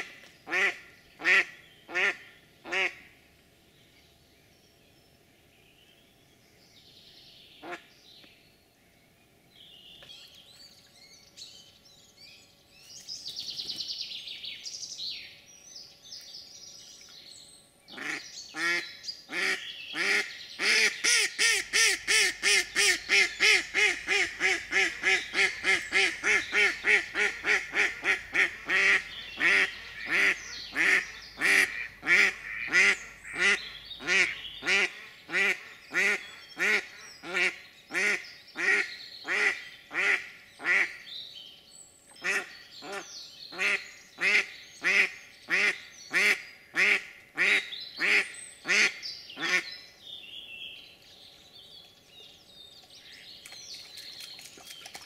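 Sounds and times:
hen duck quacking: 0:18.0 - 0:41.0.

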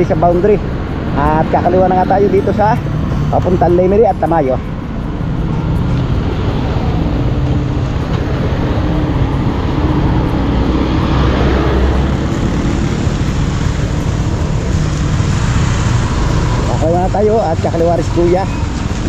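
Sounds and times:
wind rushing: 0:00.0 - 0:17.7
tyre noise on wet road: 0:05.6 - 0:19.0.

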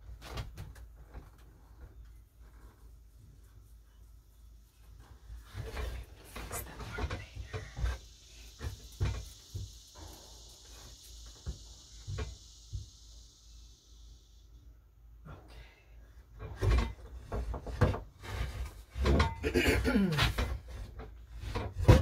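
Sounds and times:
high insect drone: 0:05.0 - 0:22.0.

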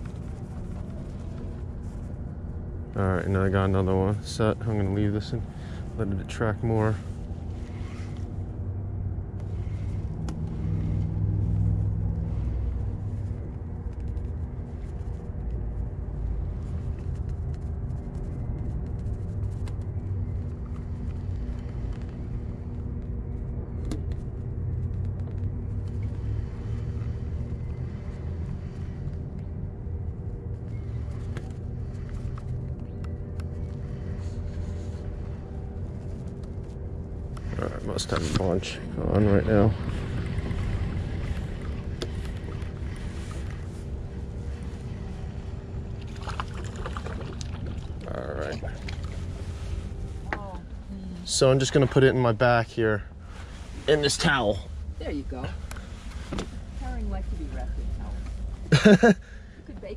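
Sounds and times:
engine running: 0:00.0 - 0:59.9.

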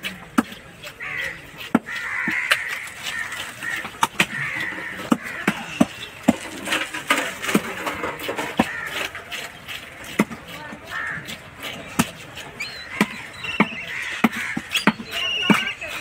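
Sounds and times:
knife chopping on wooden block: 0:13.0 - 0:15.7.

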